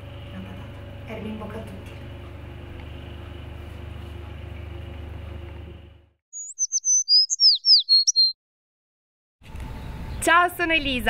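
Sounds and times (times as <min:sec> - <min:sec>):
bird chirping rapidly: 0:06.3 - 0:08.4.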